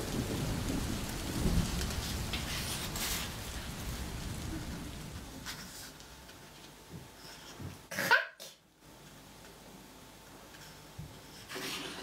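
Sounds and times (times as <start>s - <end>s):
steady hiss: 0.0s - 7.9s
paper rustles: 1.9s - 3.4s.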